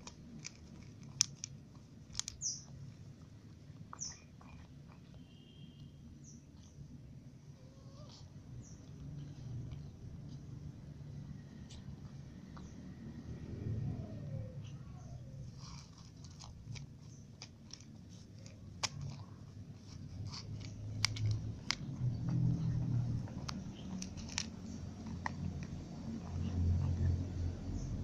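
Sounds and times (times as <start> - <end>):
cat crunching dry kibble: 0.0 - 5.0, 15.5 - 27.2.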